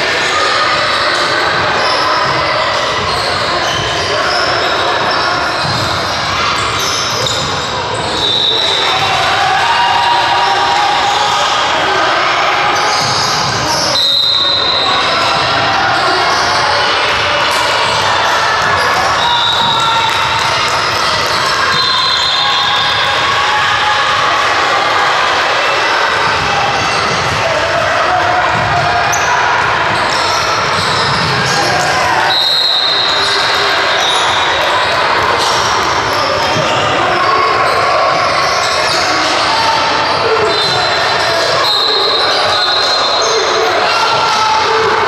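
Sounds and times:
voices: 0.0s - 45.0s
basketball bouncing on court: 5.1s - 7.6s, 17.8s - 22.0s, 28.5s - 31.9s.

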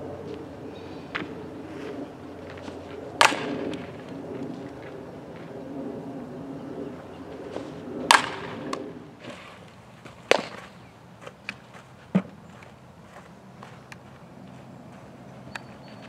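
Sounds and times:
faint outdoor background noise: 0.0s - 16.0s
softball bat crack: 2.4s - 5.5s, 7.5s - 12.4s
ball caught in glove pop: 10.3s - 10.7s.

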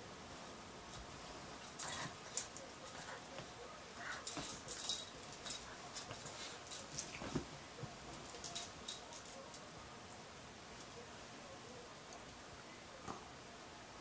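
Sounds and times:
scuffling and rustling of bedding: 0.8s - 9.4s.

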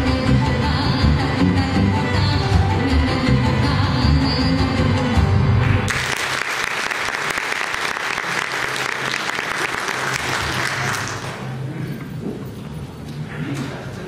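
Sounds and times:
audience applause: 5.9s - 11.5s.

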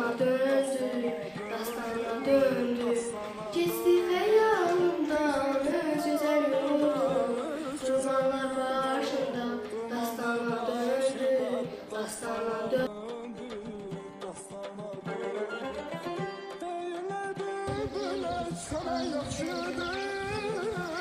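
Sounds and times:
girl singing unaccompanied: 0.0s - 12.9s, 17.6s - 21.0s.

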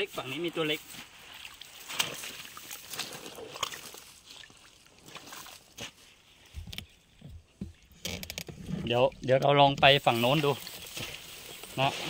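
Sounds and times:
water sloshing and lapping: 0.1s - 12.0s
hand net sweeping through water: 0.2s - 6.2s, 10.0s - 12.0s.

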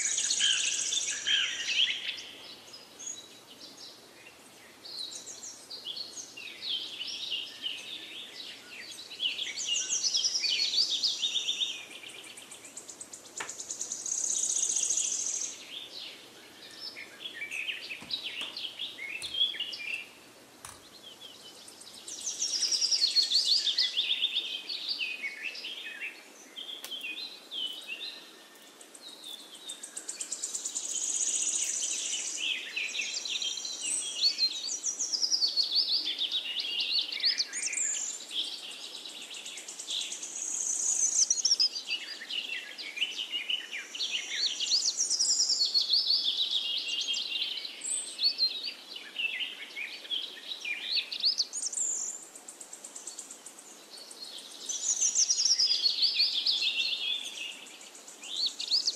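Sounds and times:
songbird warbling: 9.3s - 26.0s.

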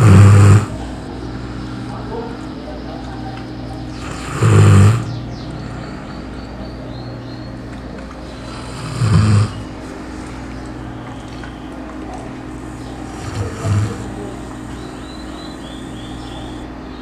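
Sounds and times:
dog snoring loudly: 0.0s - 1.0s, 3.9s - 6.1s, 8.3s - 9.8s, 12.8s - 16.6s.

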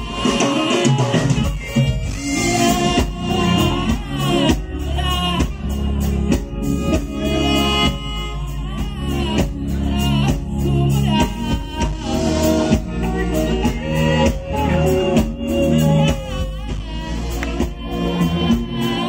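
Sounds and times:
live band playing: 0.0s - 19.0s
person singing lead vocal: 0.0s - 19.0s.

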